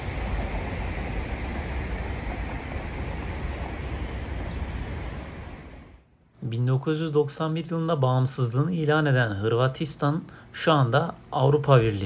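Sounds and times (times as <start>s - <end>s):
street traffic rumble: 0.0s - 6.1s.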